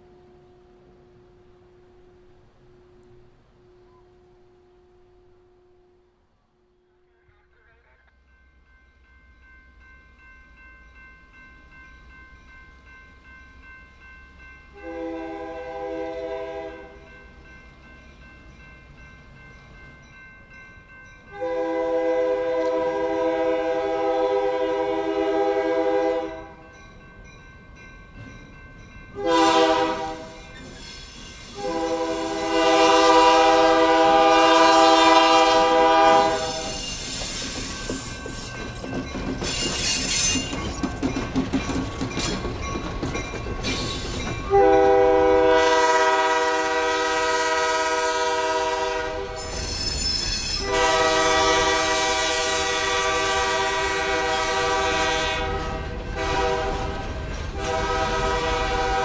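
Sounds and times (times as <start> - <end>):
train air horn blasts: 14.8 - 17.1, 21.3 - 26.6, 29.2 - 30.4, 31.5 - 36.9, 44.5 - 49.8, 50.5 - 59.0
train wheels clattering over rails: 36.2 - 44.9, 55.5 - 58.6.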